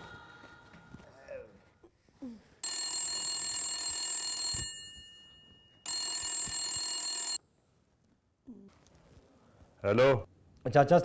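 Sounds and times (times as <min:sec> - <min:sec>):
desk telephone ringing: 0:02.6 - 0:07.4.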